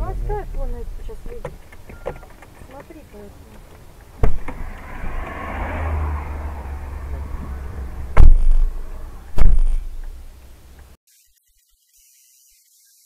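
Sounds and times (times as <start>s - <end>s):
car driving rumble from cabin: 0.0s - 11.0s
loud sharp thumps: 4.2s - 10.4s.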